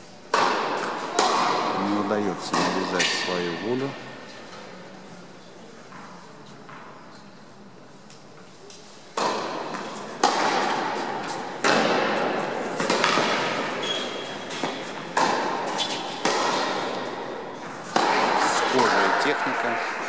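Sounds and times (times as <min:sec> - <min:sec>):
tennis ball struck by rackets: 0:00.3 - 0:01.8, 0:02.4 - 0:03.4, 0:09.2 - 0:19.7
tennis ball bouncing on court: 0:00.3 - 0:03.4, 0:09.1 - 0:19.7.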